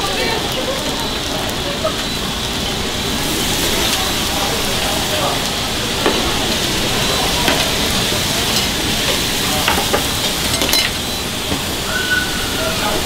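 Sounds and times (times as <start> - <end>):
food sizzling on hot plates: 0.0 - 13.0
metal tongs clinking on plates: 8.4 - 11.1.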